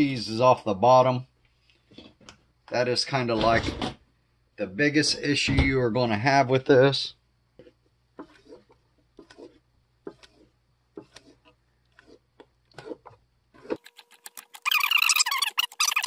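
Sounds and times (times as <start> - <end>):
spatula scraping metal bowl: 7.6 - 16.0
squeaking: 13.6 - 16.0.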